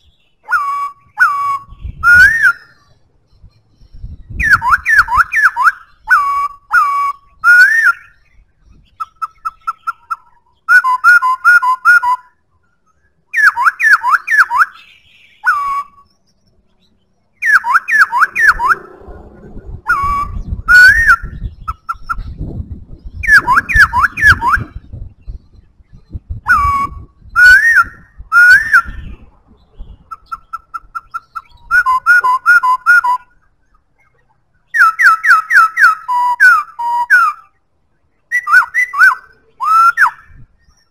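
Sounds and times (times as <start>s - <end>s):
bird whistling song: 0.0s - 19.0s, 19.6s - 40.9s
low rumble: 18.2s - 27.4s.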